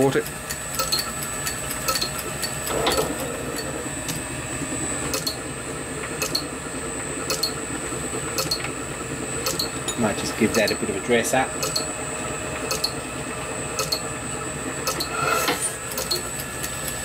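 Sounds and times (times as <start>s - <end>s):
light regular ticking: 0.0s - 2.7s, 6.2s - 6.5s, 9.4s - 10.8s, 11.6s - 11.9s, 12.7s - 13.0s, 13.8s - 14.0s, 15.9s - 17.0s
lathe motor humming: 0.0s - 17.0s.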